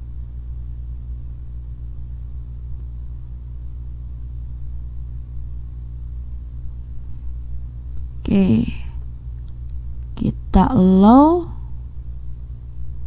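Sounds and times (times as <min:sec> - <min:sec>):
steady low-pitched hum: 0:00.0 - 0:13.0.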